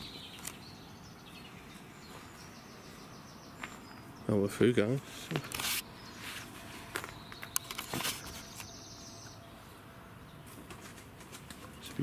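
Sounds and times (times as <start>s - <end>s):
footsteps: 1.7s - 2.5s, 3.6s - 4.1s.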